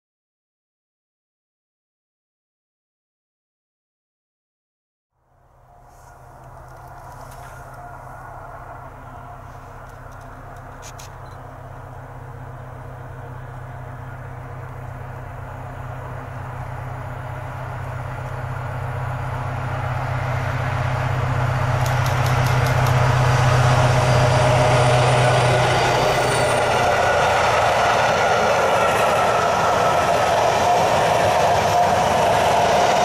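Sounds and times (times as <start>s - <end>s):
diesel locomotive engine drone: 5.1s - 33.0s
freight wagon wheels rattling on rails: 21.7s - 27.3s.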